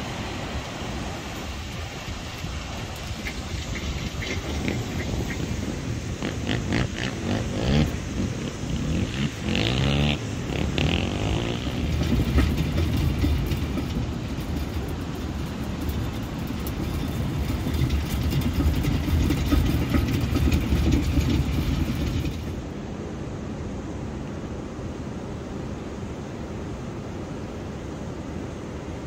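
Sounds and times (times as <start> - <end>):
wind buffeting microphone: 0.0 - 22.7.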